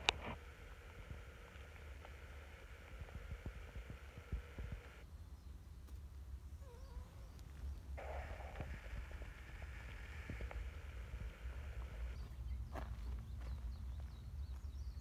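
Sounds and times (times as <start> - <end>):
steady hiss: 0.0 - 5.0, 8.0 - 12.2
wind rumble on microphone: 0.0 - 5.0, 7.7 - 15.0.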